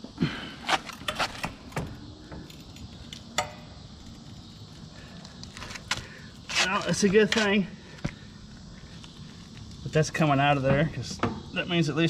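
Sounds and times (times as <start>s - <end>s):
light metallic clinks and knocks: 0.8s - 6.0s.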